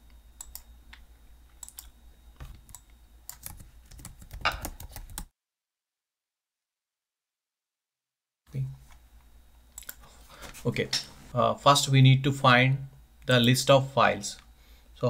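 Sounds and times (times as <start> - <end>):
mouse clicks: 1.6 - 1.9
keyboard typing: 1.6 - 5.3.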